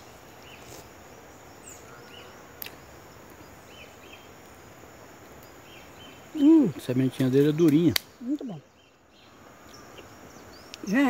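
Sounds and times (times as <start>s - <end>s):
background hiss: 0.0s - 11.0s
insect drone: 0.0s - 11.0s
bird chirps: 5.4s - 11.0s.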